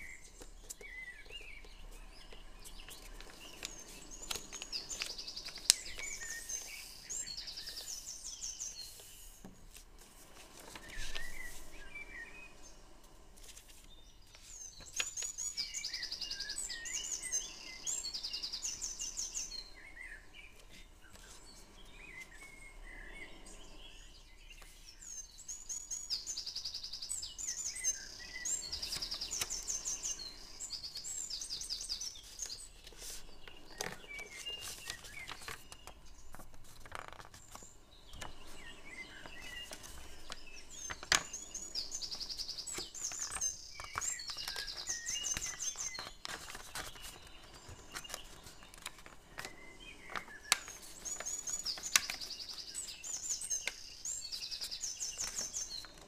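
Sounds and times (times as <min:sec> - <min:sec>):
faint background hiss: 0:00.0 - 0:56.0
songbirds trilling and chirping: 0:00.0 - 0:56.0
paper rustling and creasing: 0:02.2 - 0:12.2, 0:13.3 - 0:15.6, 0:28.5 - 0:56.0.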